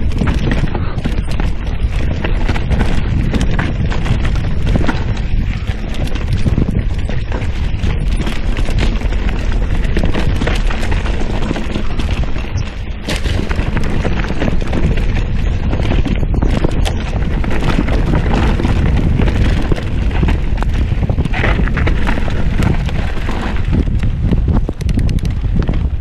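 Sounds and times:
bike rattling over bumps: 0.0s - 26.0s
wind buffeting microphone: 0.0s - 26.0s.

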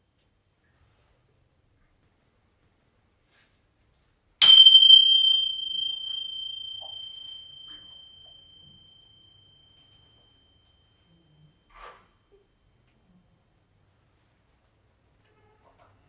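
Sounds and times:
small chime ringing: 4.4s - 11.2s.

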